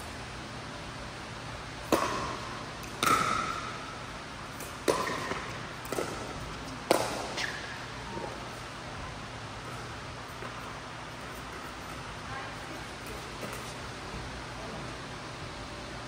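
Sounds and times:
paddles hitting plastic ball: 4.6 - 7.5.

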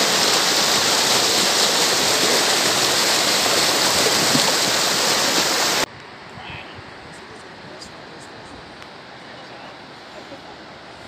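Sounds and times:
stream rushing over stones: 0.0 - 5.9.

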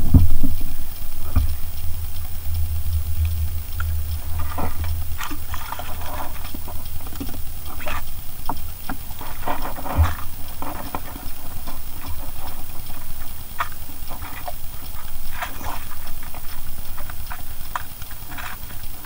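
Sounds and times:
low steady rumble: 0.0 - 19.0
water lapping and splashing: 0.0 - 19.0.

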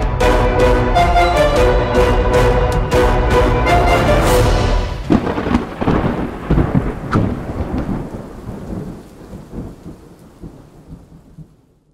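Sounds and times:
thunder rumbling: 3.6 - 11.9
sharp thunder crack: 4.4 - 11.5.

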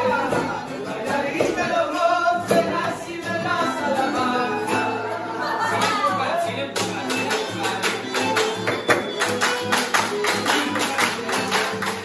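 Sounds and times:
singing: 0.0 - 9.2
accordion: 0.0 - 12.0
guitar: 0.0 - 12.0.

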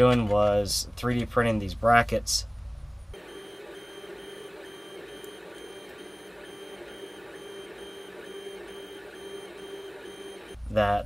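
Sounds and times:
stepper motors humming: 3.2 - 10.6.

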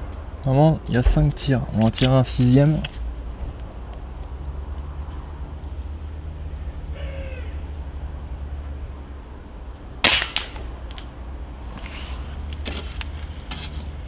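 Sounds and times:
air rifle shot crack: 10.0 - 10.7.

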